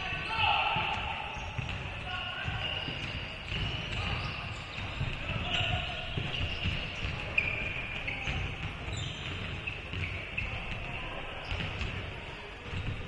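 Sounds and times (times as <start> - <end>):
shoe squeaks: 0.0 - 13.0
basketball dribbling on wood floor: 1.6 - 5.2, 6.1 - 7.4, 8.2 - 10.8, 12.6 - 13.0.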